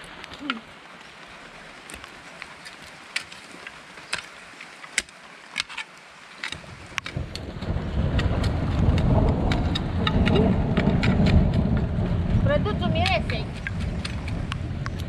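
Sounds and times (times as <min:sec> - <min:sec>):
rain: 0:00.0 - 0:15.0
loud low rumble: 0:07.2 - 0:15.0.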